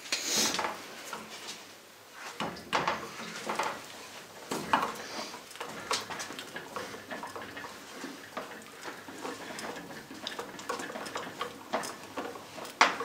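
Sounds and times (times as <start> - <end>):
screw creaking and scraping: 2.4 - 13.0.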